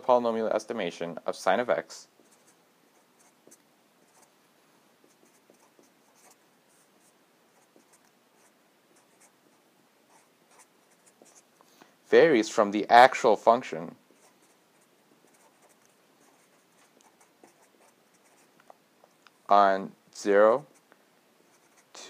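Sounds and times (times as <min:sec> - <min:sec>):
marker scratching on paper: 0:02.2 - 0:04.3, 0:05.0 - 0:11.5, 0:14.1 - 0:18.6, 0:20.6 - 0:22.0.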